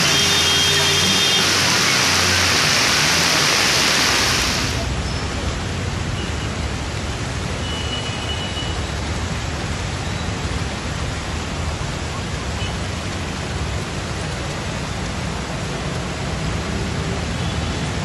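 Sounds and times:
heavy rain hissing: 0.0 - 5.0.

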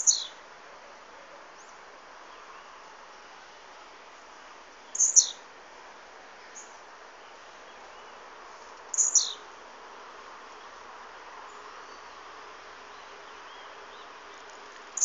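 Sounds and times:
bird singing high song: 0.0 - 0.4, 4.2 - 5.5, 6.4 - 9.5, 11.4 - 15.0.

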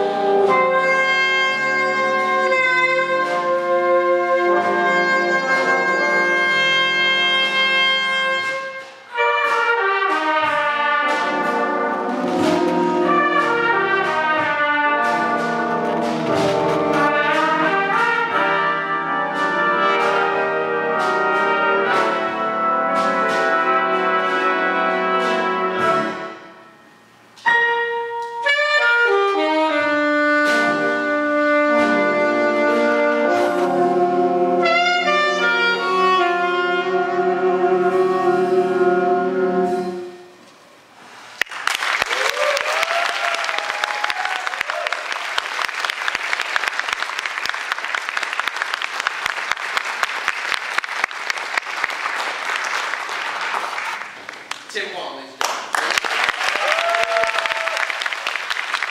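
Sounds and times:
jazz big band playing: 0.0 - 58.9
audience cheering: 41.4 - 54.2, 55.7 - 58.9
audience applause: 41.4 - 54.7, 55.4 - 58.9.

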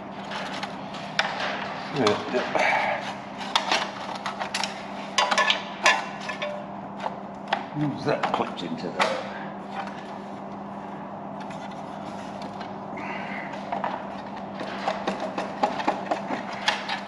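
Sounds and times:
steady background hum: 0.0 - 17.0.

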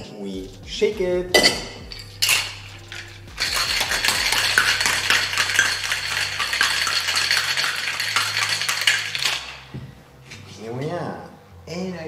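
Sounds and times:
ice rattling in cocktail shaker: 1.9 - 9.7.

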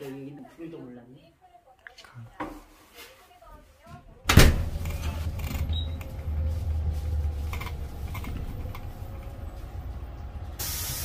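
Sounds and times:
bus engine rumble: 4.2 - 11.0
light clicks and rattles: 4.8 - 9.6.

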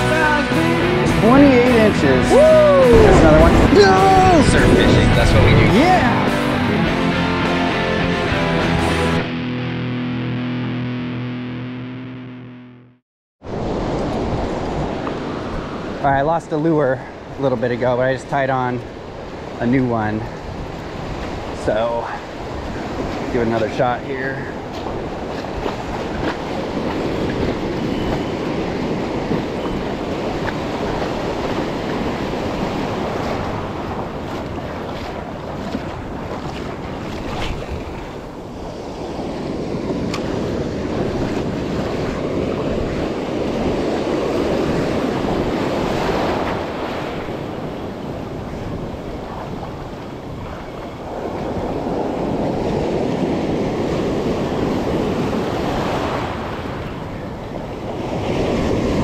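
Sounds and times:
wind buffeting microphone: 0.0 - 6.3, 18.8 - 59.0
ocean surf washing: 0.0 - 11.6, 13.4 - 59.0.

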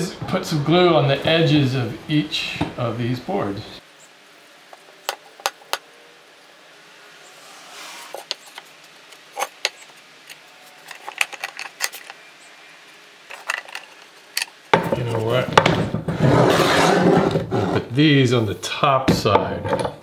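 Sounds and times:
wood sliding scrape: 7.3 - 10.0, 13.3 - 17.9.

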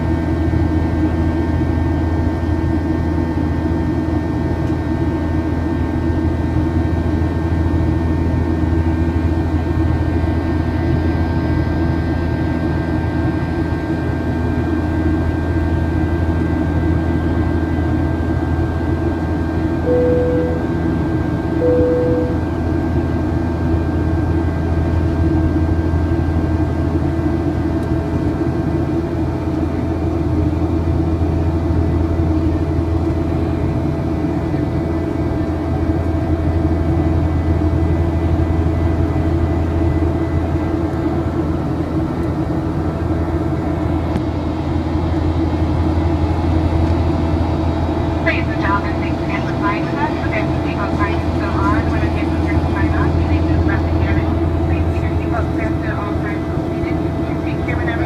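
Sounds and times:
aircraft cabin drone: 0.0 - 58.0
faint whining tones: 19.9 - 20.8, 21.6 - 22.5
short mid-pitched tones: 19.9 - 20.8, 21.6 - 22.6.

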